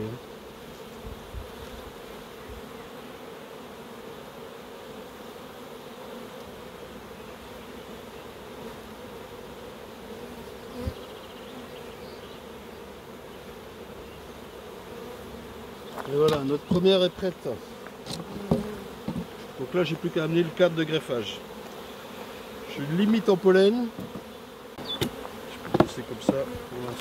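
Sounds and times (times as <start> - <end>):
bees buzzing: 0.0 - 27.0
wooden knock: 18.5 - 19.3, 25.7 - 26.4.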